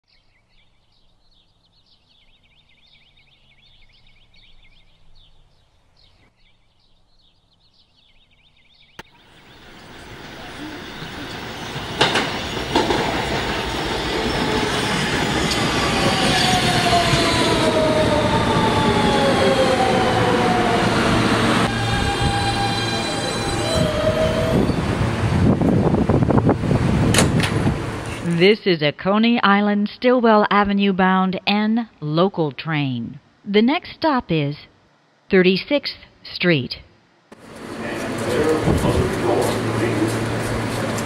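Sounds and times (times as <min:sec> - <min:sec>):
subway train rumble and rail noise: 0:09.2 - 0:28.4, 0:37.4 - 0:41.0.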